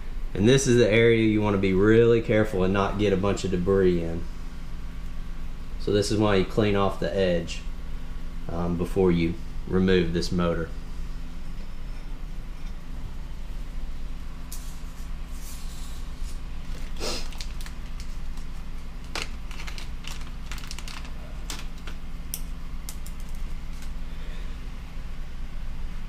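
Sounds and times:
plastic bag crinkling: 16.6 - 24.0.

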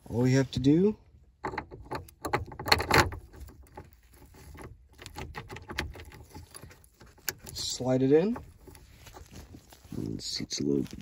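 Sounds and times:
key and keyring clicking and rattling: 1.4 - 7.5.

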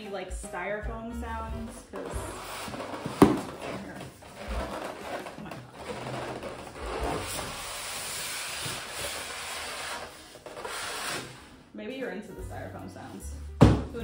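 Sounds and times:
styrofoam scraping in cardboard box: 2.0 - 11.6.

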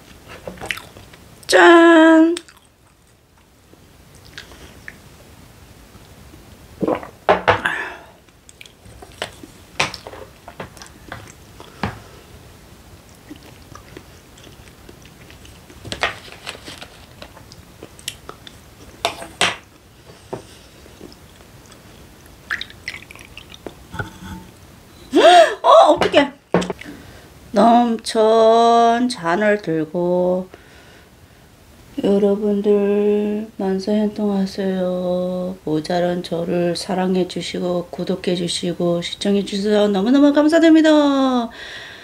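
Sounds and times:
chewing and eating: 0.5 - 1.2, 2.4 - 3.5, 13.1 - 15.8.

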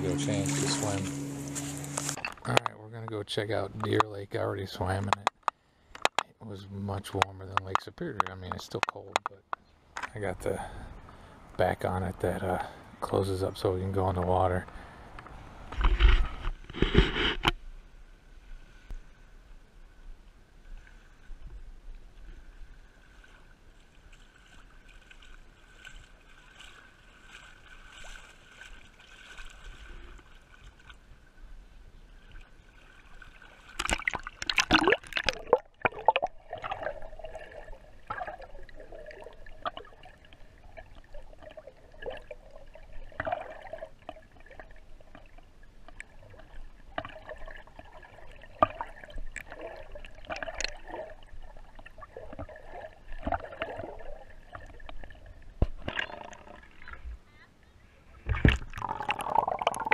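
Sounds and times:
underwater sloshing and gurgling: 0.0 - 2.5, 8.7 - 57.3, 58.0 - 59.9
muffled water lapping: 0.0 - 59.9.

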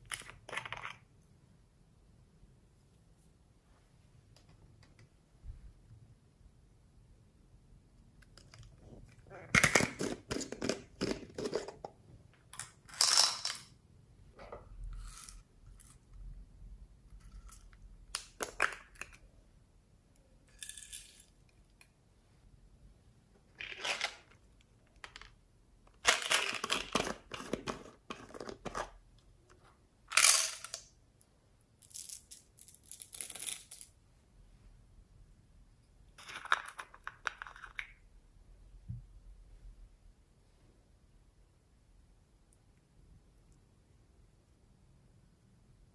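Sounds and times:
plastic jar lids scraping and clicking: 0.0 - 1.0, 8.3 - 12.0, 26.1 - 29.0, 36.2 - 38.0.

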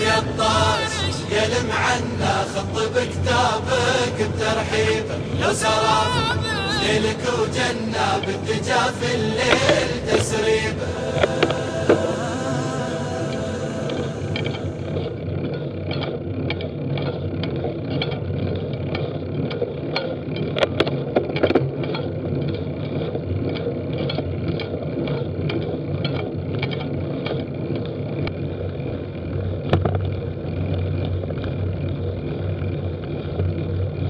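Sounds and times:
light regular ticking: 13.9 - 34.0
bicycle knocks: 29.7 - 30.1.

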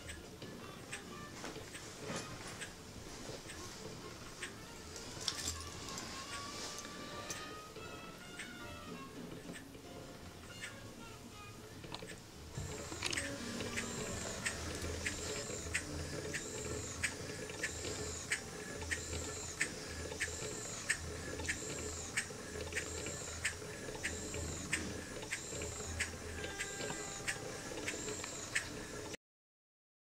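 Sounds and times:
steam engine clicking: 6.2 - 8.6, 11.8 - 29.2.

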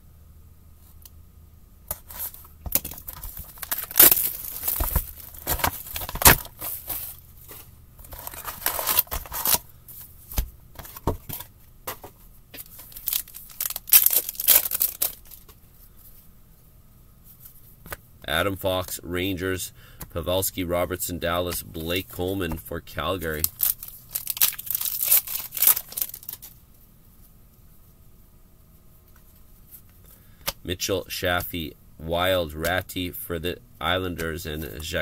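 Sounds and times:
card pack wrapper tearing: 2.1 - 7.2, 8.0 - 9.6, 12.7 - 15.5, 23.2 - 26.5.

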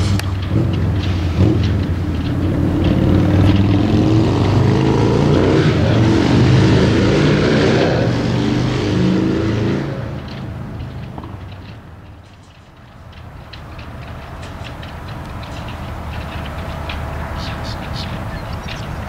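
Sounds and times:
vehicle engine drone passing: 0.0 - 11.9
tyre and road noise: 0.0 - 19.0.

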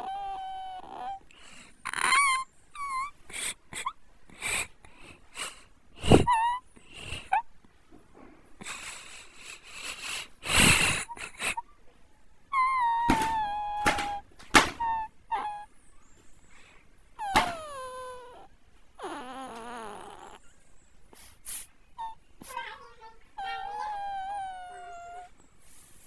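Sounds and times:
young child crying: 0.0 - 1.3, 12.5 - 15.7, 17.2 - 20.4, 22.0 - 25.3.

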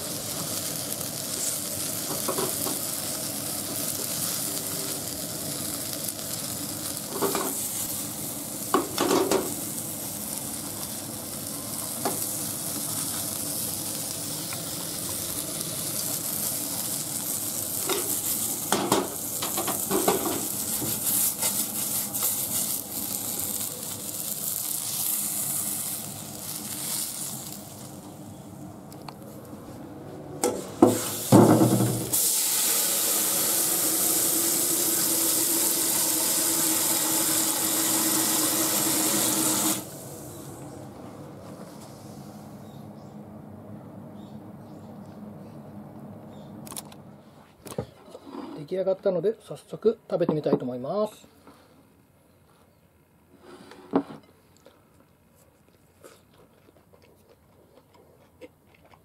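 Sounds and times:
fish sizzling in a frying pan: 0.0 - 27.8, 30.8 - 40.3
knocks against a pan: 30.4 - 32.0
tap running water: 30.8 - 39.8.

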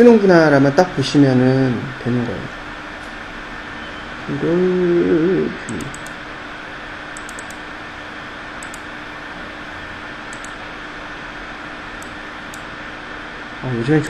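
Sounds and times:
faint hum: 0.0 - 14.0
microphone hiss: 0.0 - 14.0
computer mouse clicks: 5.7 - 6.2, 7.1 - 7.7, 8.6 - 8.9, 10.3 - 10.6, 12.0 - 12.7.

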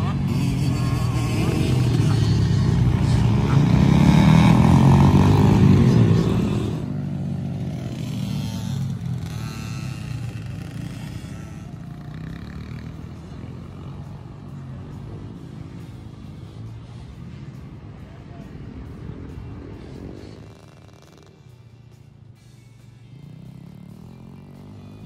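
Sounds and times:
dirt bike engine revving: 0.0 - 17.6, 23.1 - 25.0
distant dirt bike engines: 0.0 - 25.0.

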